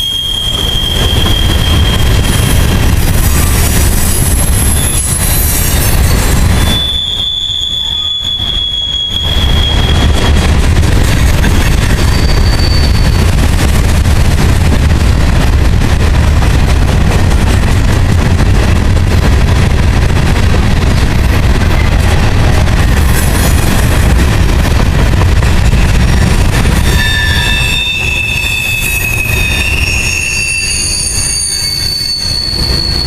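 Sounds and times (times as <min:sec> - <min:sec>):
train wheel squealing: 0:00.0 - 0:13.8, 0:25.6 - 0:33.0
freight train rumbling past: 0:00.0 - 0:33.0.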